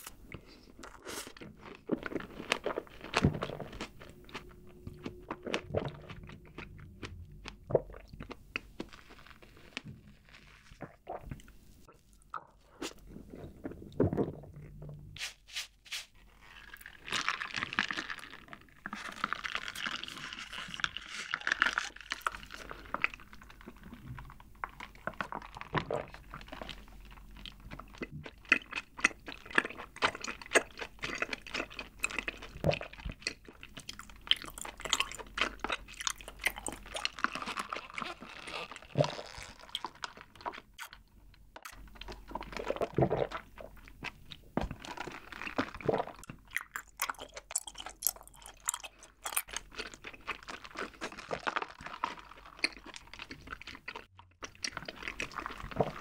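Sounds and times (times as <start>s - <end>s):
wet chewing: 0.0s - 14.6s, 16.4s - 56.0s.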